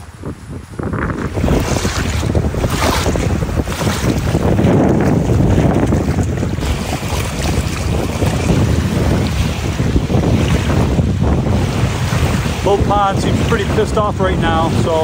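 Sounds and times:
gusty wind on microphone: 0.0 - 15.0
waves washing onto stony shore: 1.2 - 15.0.

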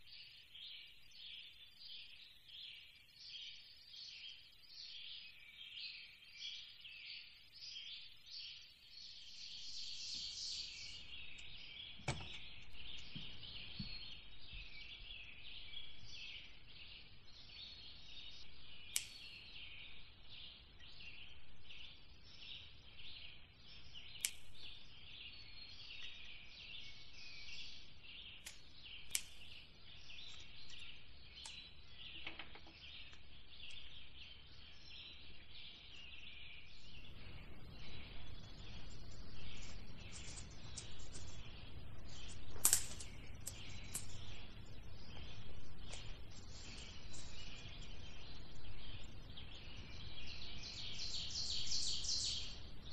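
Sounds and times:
small birds chirping: 0.0 - 52.9
sharp clicks: 18.9 - 19.4, 42.6 - 44.2.

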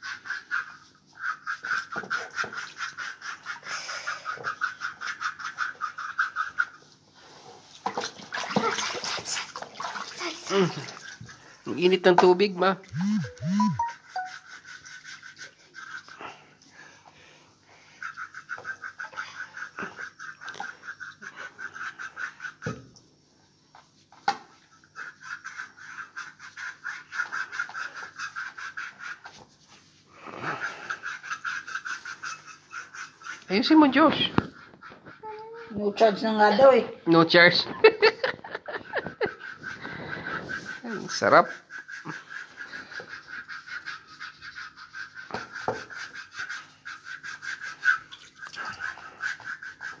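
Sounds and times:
feet scrubbed over water basin: 0.0 - 11.7, 12.8 - 22.7, 23.7 - 35.2, 37.8 - 50.0
foot scrubber scratching: 12.9 - 15.3.

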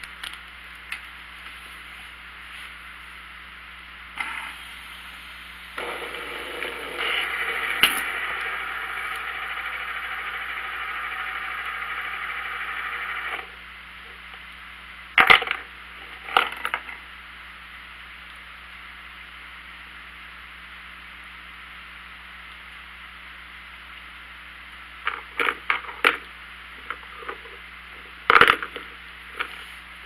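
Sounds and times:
fidget spinner whirring: 4.2 - 13.6
spinner clacking against floorboards: 28.3 - 29.5.

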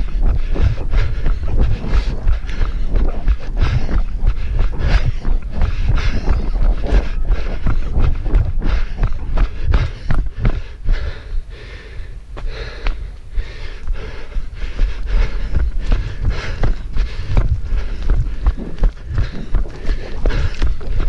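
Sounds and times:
runner breathing hard: 0.0 - 21.0
running footsteps: 0.0 - 21.0.

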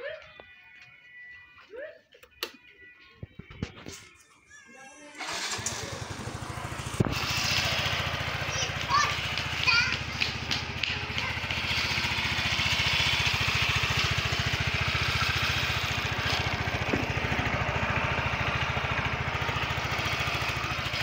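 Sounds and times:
scooter engine idling: 5.2 - 21.0.

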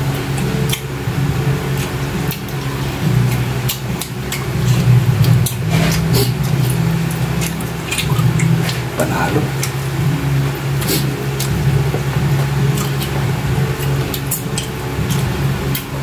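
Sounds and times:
people chewing food: 0.0 - 16.0
steady low hum: 0.0 - 16.0
wet clicks and smacks: 3.3 - 9.8, 10.8 - 13.2.

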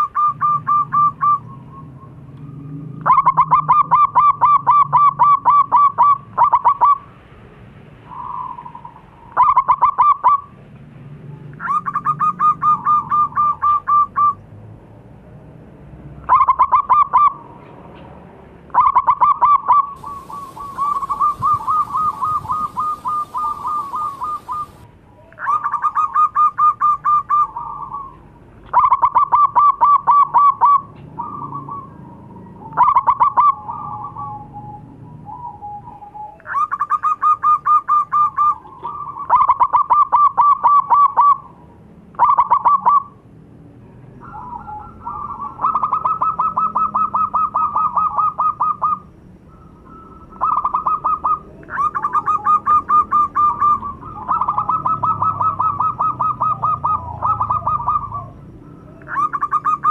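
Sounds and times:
dove cooing: 0.0 - 7.1, 8.1 - 10.5, 11.4 - 14.4, 16.3 - 17.7, 18.7 - 43.2, 44.2 - 59.9.

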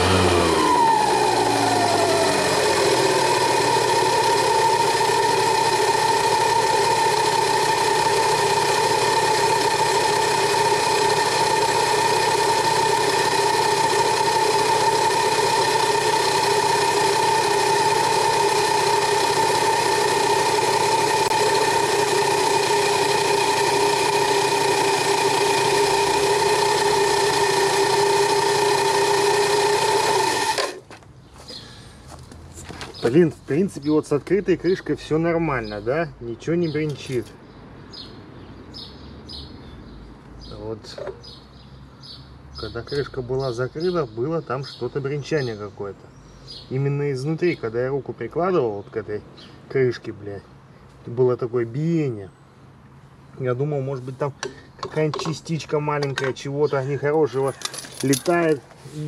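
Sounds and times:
scooter engine whining: 0.0 - 34.0, 57.3 - 59.0.

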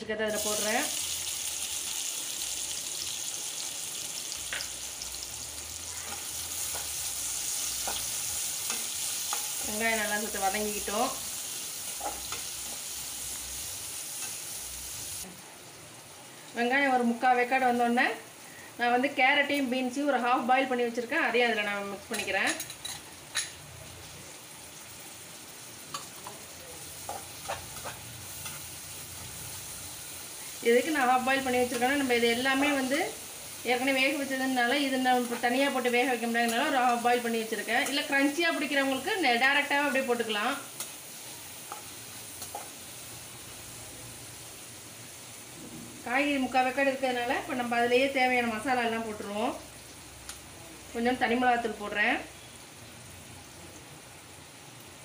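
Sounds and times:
onions sizzling in hot oil: 0.1 - 55.0
spatula clicking and scraping pan: 6.0 - 9.7, 11.9 - 12.8, 22.1 - 23.6, 27.0 - 28.7, 41.6 - 42.8.

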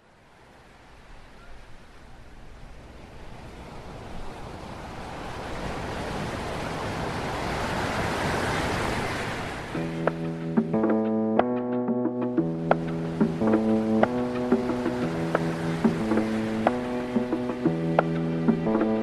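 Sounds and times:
sea waves surf rushing: 2.7 - 11.0, 12.2 - 19.0.

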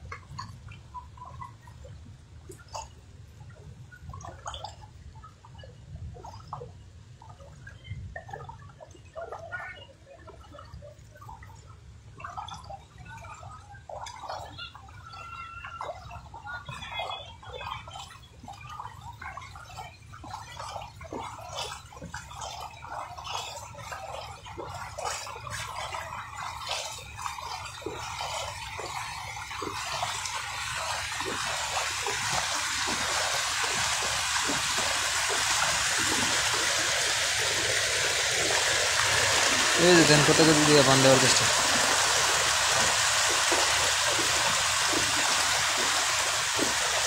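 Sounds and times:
wading through shallow water: 0.0 - 47.0
flowing floodwater rushing: 12.6 - 47.0.

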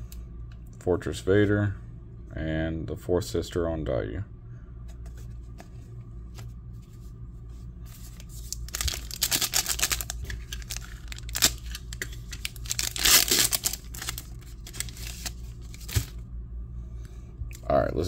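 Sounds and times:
foil wrapper crinkling and tearing: 8.2 - 16.2.

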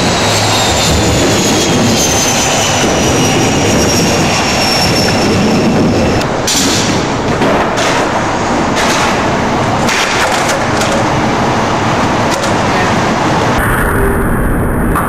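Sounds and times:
skateboard clacking on ground: 6.4 - 11.2.

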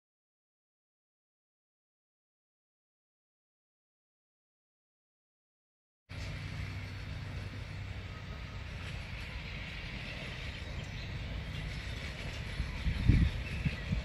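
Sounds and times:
distant steam train rumbling: 6.1 - 14.0.

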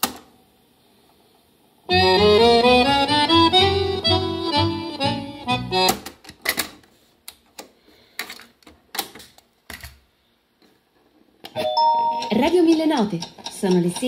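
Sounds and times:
tango music with accordion: 1.9 - 6.0.

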